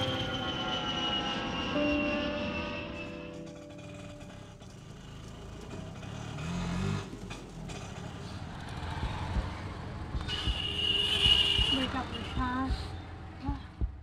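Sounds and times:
street traffic: 0.0 - 14.0
engine revving: 3.7 - 10.2.

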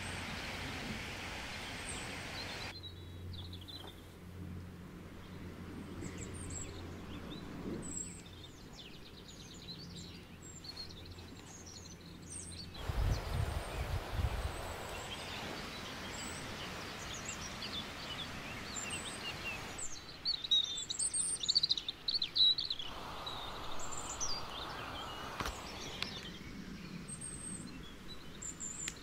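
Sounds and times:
songbirds chirping and trilling: 0.0 - 29.0
steady low hum: 22.7 - 28.8.

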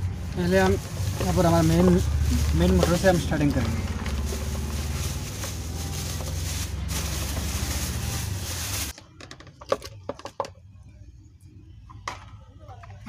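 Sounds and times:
plastic bag rustling: 0.0 - 9.0.

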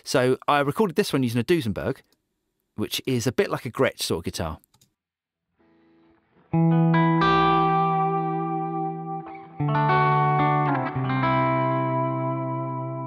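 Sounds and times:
distorted electric guitar chords: 6.1 - 13.0.

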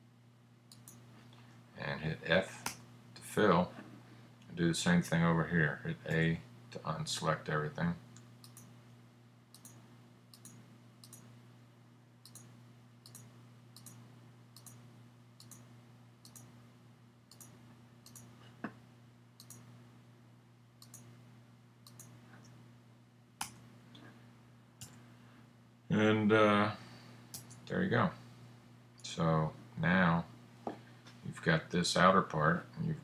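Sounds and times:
low electrical hum: 0.0 - 33.0
computer mouse clicks: 0.7 - 1.0, 8.2 - 8.7, 9.5 - 11.3, 12.2 - 14.0, 14.6 - 14.8, 15.4 - 16.5, 17.3 - 18.3, 19.4 - 19.7, 20.8 - 21.1, 21.8 - 22.6, 27.3 - 27.6.

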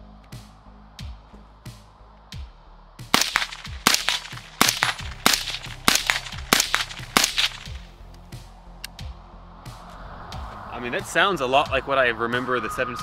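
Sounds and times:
suppressed rifle shots: 3.1 - 7.9.

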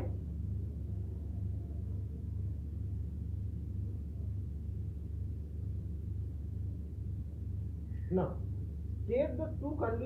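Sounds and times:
low room hum: 0.0 - 10.0.

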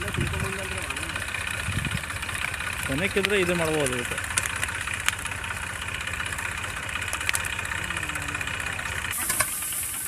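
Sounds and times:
diesel engine idling: 0.0 - 10.0
sharp cracks: 2.0 - 9.6.

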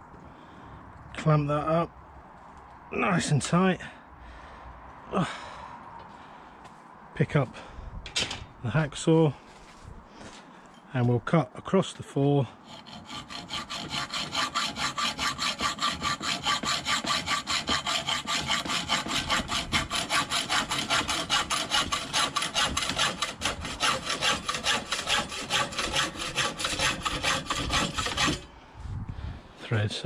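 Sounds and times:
hacksaw cutting through metal: 12.6 - 28.5.

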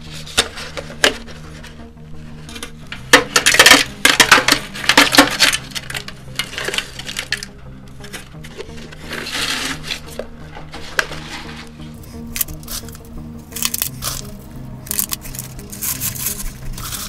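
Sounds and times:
gravel scraping in metal can: 3.4 - 17.0.

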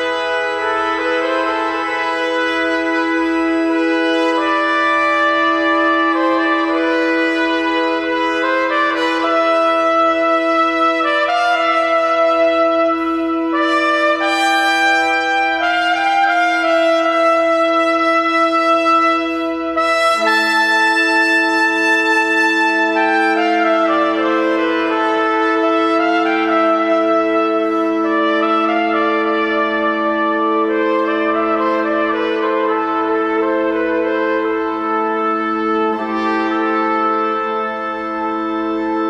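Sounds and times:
pipe organ: 0.0 - 39.0
trumpet: 0.0 - 39.0.

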